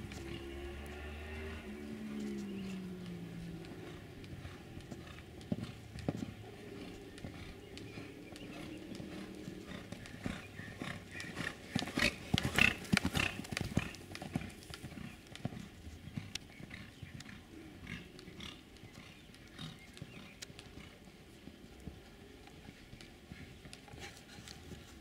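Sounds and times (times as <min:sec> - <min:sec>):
horse hoofbeats on sand: 0:00.0 - 0:25.0.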